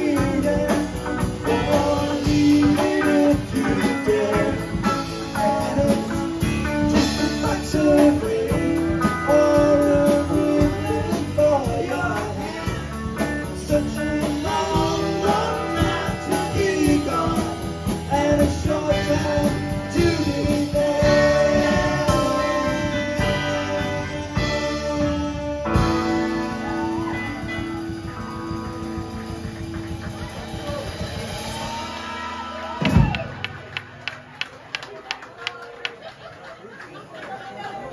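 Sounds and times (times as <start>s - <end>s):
person singing: 0.0s - 28.2s
rock band playing: 0.0s - 34.9s.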